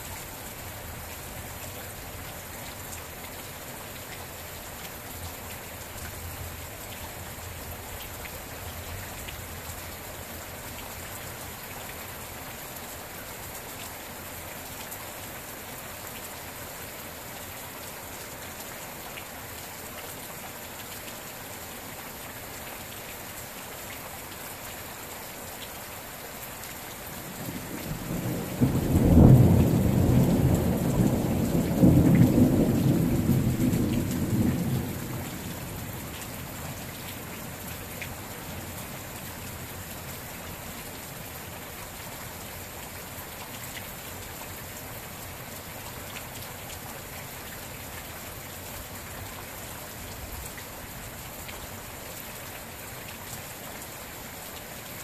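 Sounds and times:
steady rain: 0.0s - 55.0s
low roll of thunder: 27.5s - 35.9s.

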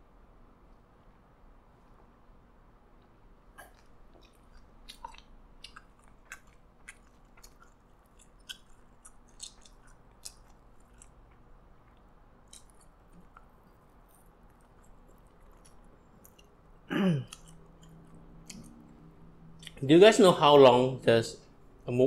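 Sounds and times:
wet chewing clicks: 3.0s - 19.8s.

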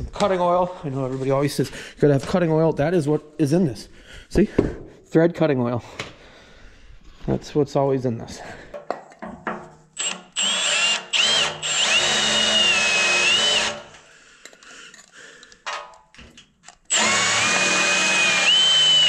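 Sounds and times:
drill bit squealing whine: 10.0s - 13.7s, 16.9s - 19.0s
power drill boring steel: 10.0s - 14.0s, 16.9s - 19.0s.

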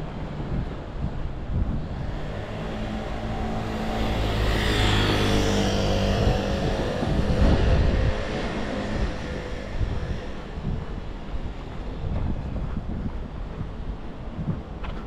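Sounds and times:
vehicle passing by: 1.6s - 10.8s.

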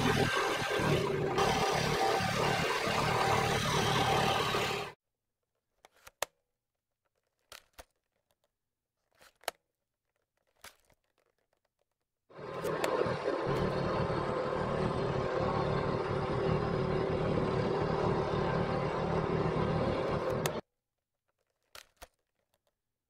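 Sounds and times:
scroll saw cutting wood: 0.0s - 5.0s, 12.3s - 20.6s.

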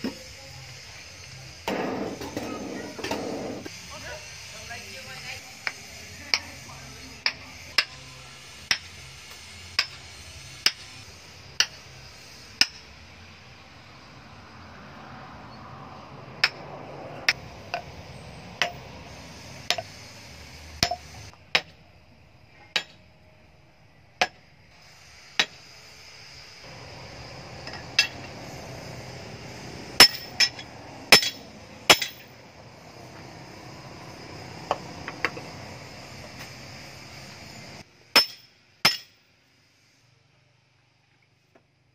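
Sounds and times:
hammer striking metal: 10.6s - 10.9s, 11.6s - 11.8s, 12.6s - 13.0s, 16.4s - 16.6s, 22.7s - 23.0s, 26.7s - 28.4s, 30.0s - 32.4s, 38.2s - 39.2s.

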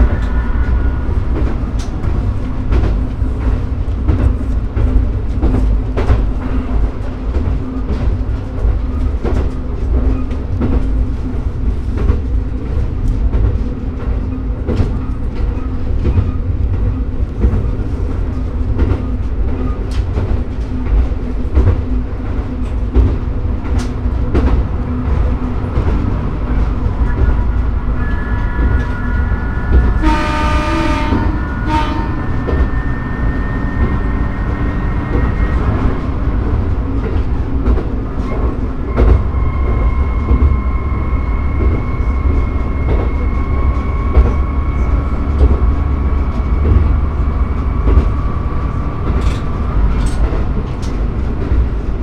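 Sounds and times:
diesel railcar rumbling: 0.0s - 52.0s
train horn: 28.0s - 34.5s.

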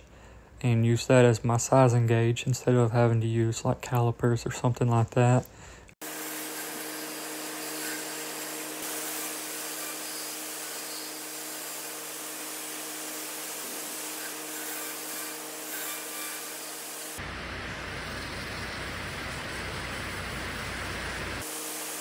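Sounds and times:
lathe tool shaving wood: 6.0s - 17.2s.

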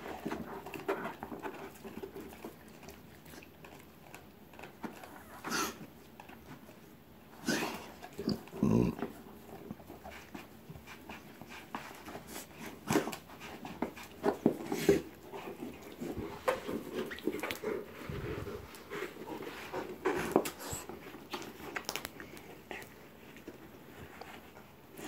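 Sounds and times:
dog gnawing at a ball: 0.0s - 25.0s
dog panting: 9.2s - 24.6s.

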